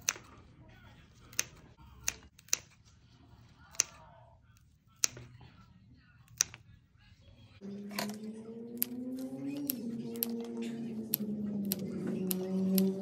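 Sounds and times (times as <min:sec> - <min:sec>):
scissors snipping stems: 0:07.9 - 0:13.0.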